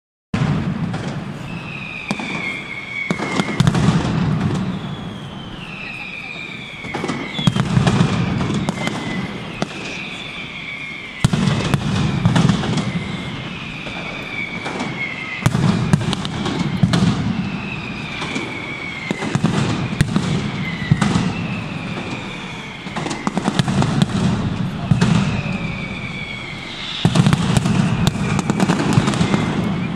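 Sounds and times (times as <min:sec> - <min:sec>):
firecrackers banging: 0:00.4 - 0:29.9
whistling fireworks: 0:00.4 - 0:29.9
deep rumbling bursts: 0:21.7 - 0:29.9.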